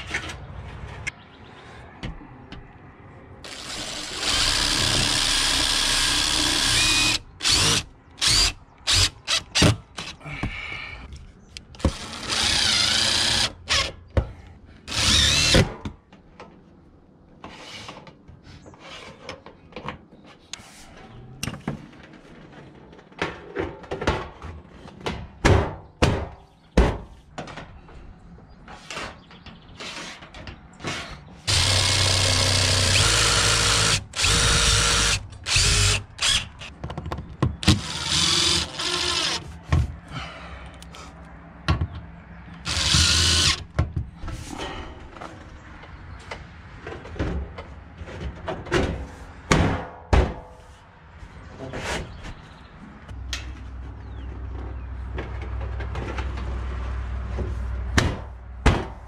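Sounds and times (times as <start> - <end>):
impact driver driving screws: 3.5 - 10.2, 31.5 - 36.7, 37.6 - 39.5, 42.7 - 43.6.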